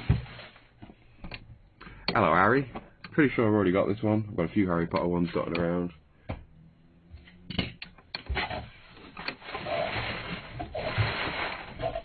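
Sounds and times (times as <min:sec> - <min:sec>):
packaging rustling and scraping: 0:00.0 - 0:00.8, 0:08.4 - 0:12.0.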